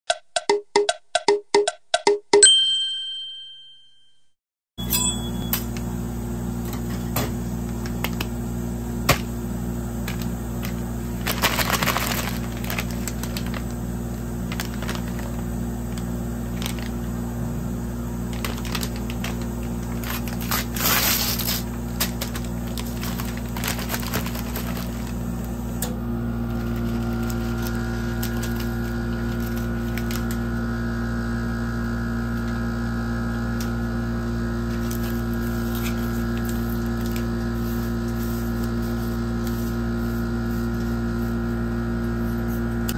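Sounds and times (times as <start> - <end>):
ice cream machine humming: 4.8 - 42.9
wrappers crinkling: 10.0 - 17.1, 18.2 - 25.5, 26.5 - 30.4.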